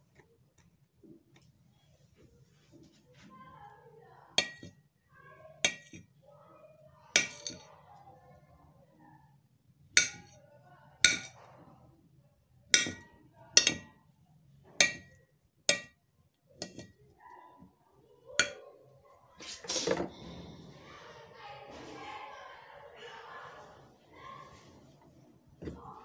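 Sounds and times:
knife clinking on ceramic plate: 0:07.2 - 0:07.6, 0:10.0 - 0:10.4, 0:13.6 - 0:13.9, 0:16.6 - 0:16.9.

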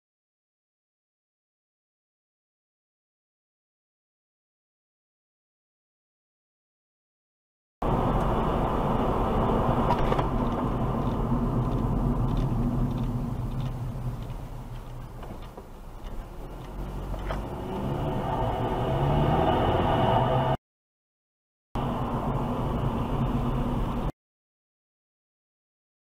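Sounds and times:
car road and engine noise: 0:07.8 - 0:20.6, 0:21.8 - 0:24.2.

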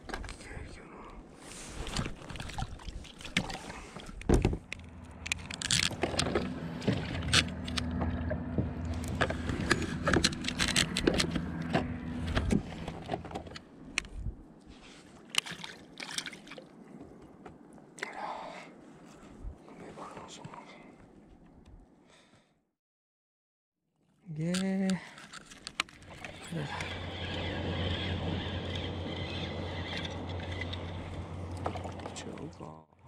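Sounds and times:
low steady hum: 0:00.1 - 0:14.9
fishing tackle clicking and rattling: 0:04.6 - 0:06.5, 0:09.1 - 0:11.6, 0:24.4 - 0:27.2.

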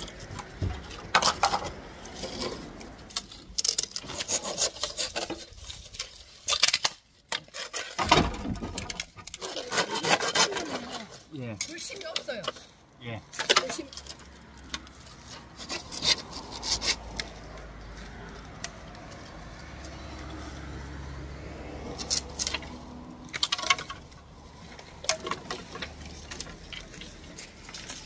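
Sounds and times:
hollow bamboo clacks and knocks: 0:00.0 - 0:10.5, 0:21.8 - 0:28.0
hand saw cutting bamboo: 0:03.6 - 0:05.8, 0:09.2 - 0:11.2, 0:15.3 - 0:17.3.

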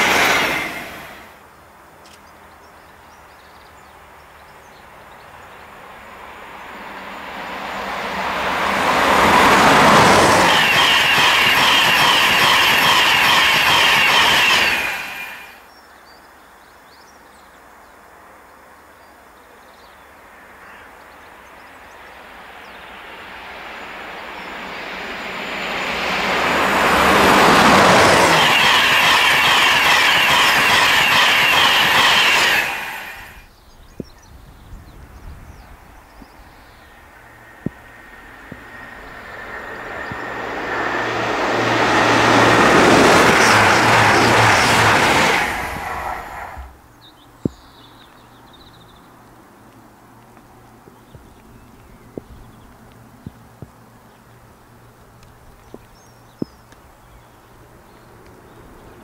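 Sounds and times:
wheels roaring on rail: 0:00.0 - 0:01.5, 0:05.2 - 0:15.6, 0:21.3 - 0:33.5, 0:34.9 - 0:46.8
trains passing at speed: 0:00.0 - 0:02.0, 0:03.0 - 0:15.8, 0:20.1 - 0:47.2, 0:47.8 - 0:59.0.

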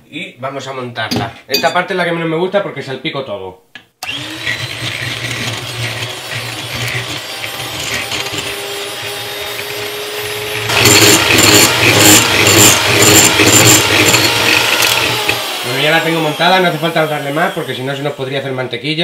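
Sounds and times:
electric hand mixer whipping cream: 0:04.0 - 0:18.7.

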